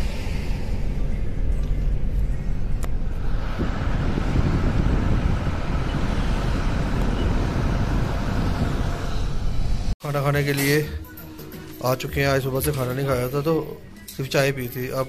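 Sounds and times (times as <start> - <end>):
car engine and tyre rumble: 0.0 - 10.0
road hiss: 3.0 - 10.0.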